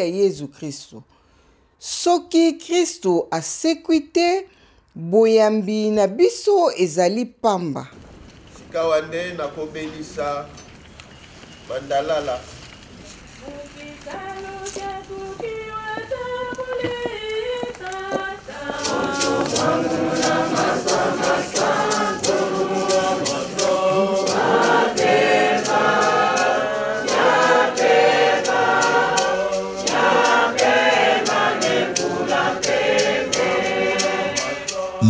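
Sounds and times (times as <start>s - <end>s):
congregation singing a hymn: 13.9s - 35.0s
sharp percussive strikes: 18.8s - 35.0s.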